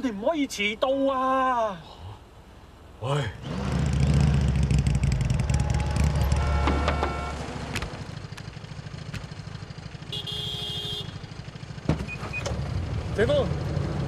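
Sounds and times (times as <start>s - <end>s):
motorcycle engine rumbling: 3.4s - 14.0s.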